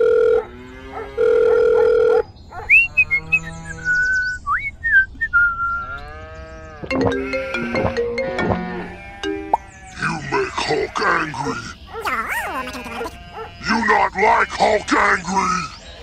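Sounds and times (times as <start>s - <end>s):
whistled pitch glides: 2.7s - 5.9s
music: 6.9s - 9.5s.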